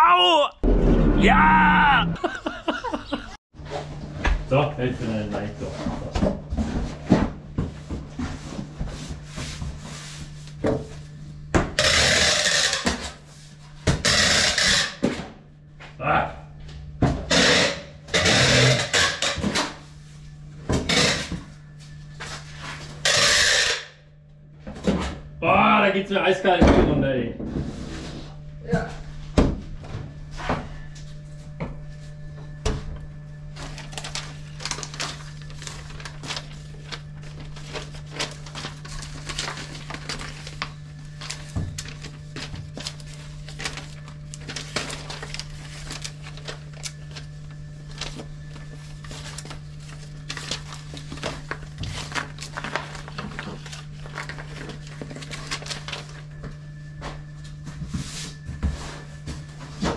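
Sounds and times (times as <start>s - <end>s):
steady low hum: 0.5s - 12.0s, 23.9s - 59.9s
cardboard and paper rustling: 33.6s - 59.9s.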